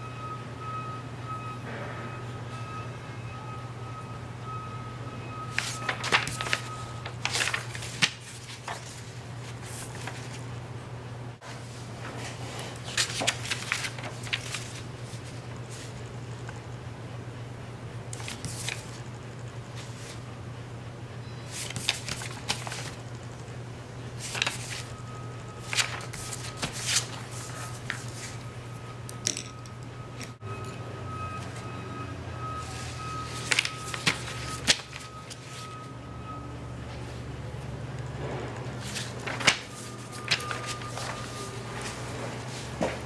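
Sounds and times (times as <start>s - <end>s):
steady low hum: 0.0s - 43.0s
paper rustling and crinkling: 5.5s - 10.5s, 11.4s - 16.0s, 18.2s - 19.0s, 21.5s - 23.0s, 24.2s - 25.0s, 25.6s - 28.5s, 32.7s - 35.8s, 38.8s - 43.0s.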